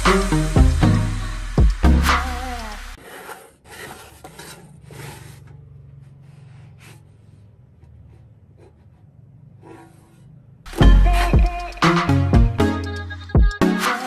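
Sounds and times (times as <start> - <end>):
background music: 0.0 - 3.0, 10.7 - 14.0
spatula scraping a griddle: 3.0 - 5.6, 9.5 - 11.3.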